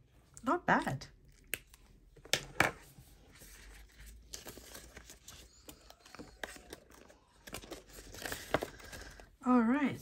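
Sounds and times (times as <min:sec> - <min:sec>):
paper and plastic rustling: 0:02.5 - 0:09.4.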